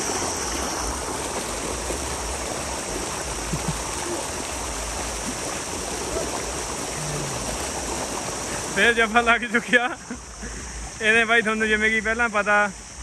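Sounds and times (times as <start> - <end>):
water gushing into a tank: 0.0 - 10.1.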